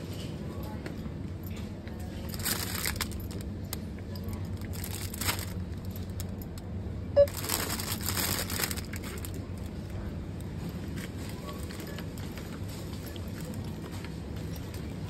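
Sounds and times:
low store hum: 0.0s - 15.0s
plastic bags crinkling: 2.1s - 6.6s, 7.2s - 13.8s
scanner beep: 7.1s - 7.4s.

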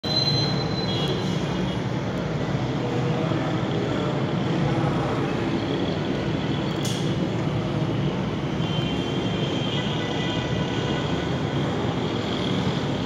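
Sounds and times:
busy road traffic: 0.0s - 13.0s
brief click: 6.8s - 7.1s.

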